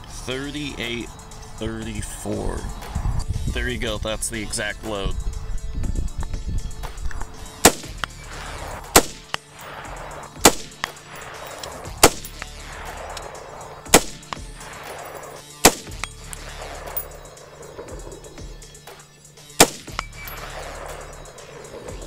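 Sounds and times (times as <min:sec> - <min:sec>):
rifle shots: 0:07.6 - 0:17.9, 0:19.6 - 0:22.0.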